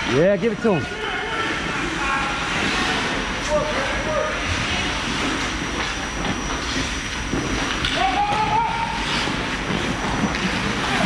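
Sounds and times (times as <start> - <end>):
skates scraping over ice: 0.8 - 11.0.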